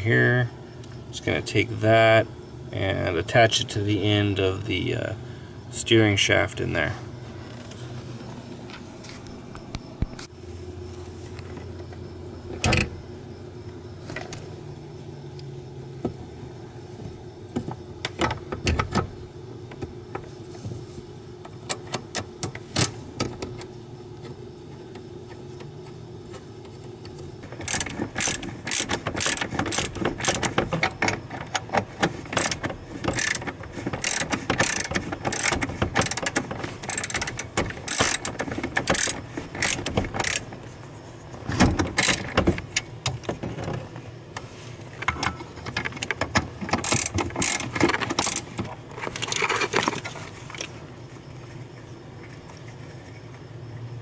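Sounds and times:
ratchet wrench clicking: 27.5 - 30.9, 32.3 - 40.5, 46.7 - 48.5.

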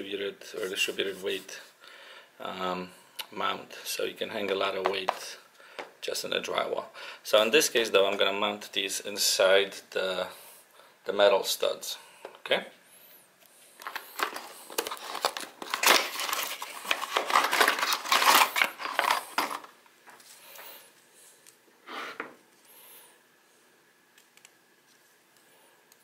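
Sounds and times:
package rustling and crinkling: 13.7 - 20.7.

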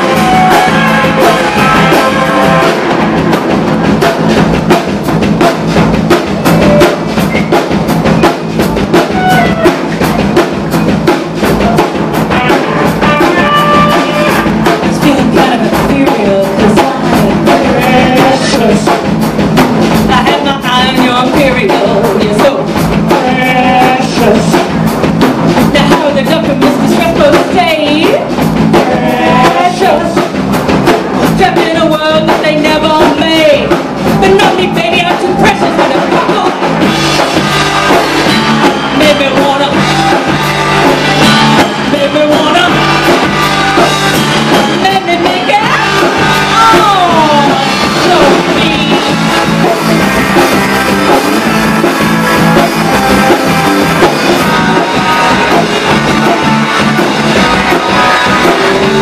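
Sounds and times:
drum kit: 0.0 - 59.0
electric bass: 0.0 - 59.0
electric guitars: 0.0 - 59.0
woman singing: 13.8 - 19.1, 20.1 - 24.7, 25.7 - 30.3, 31.3 - 36.7, 38.8 - 40.2, 41.2 - 43.0, 44.7 - 49.2.

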